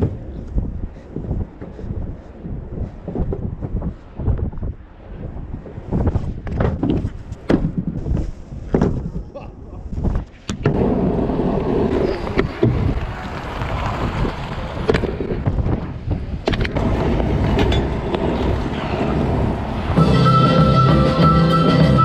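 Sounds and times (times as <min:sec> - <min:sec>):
scooter wheels rolling on pavement: 0:00.0 - 0:09.3, 0:09.9 - 0:21.9
wind buffeting microphone: 0:00.0 - 0:20.1
band music: 0:20.0 - 0:22.0.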